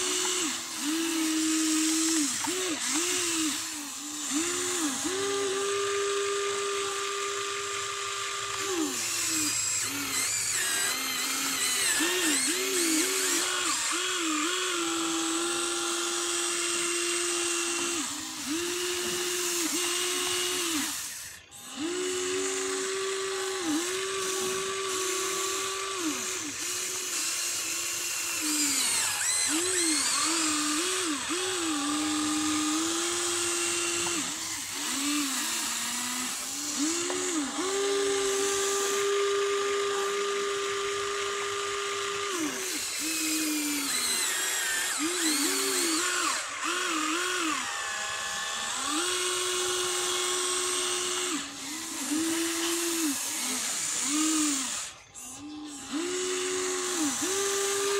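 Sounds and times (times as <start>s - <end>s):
electric motors whining: 0.0s - 57.9s.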